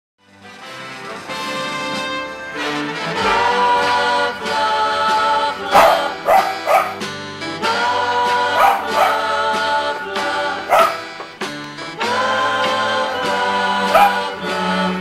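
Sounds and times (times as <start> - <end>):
music: 0.2 - 15.0
dog making short calls: 10.7 - 11.1.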